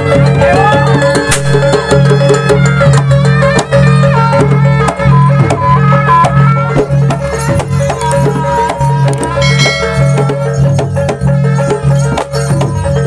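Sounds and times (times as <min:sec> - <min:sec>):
traditional percussion ensemble: 0:00.0 - 0:13.0
melody line: 0:09.3 - 0:11.4.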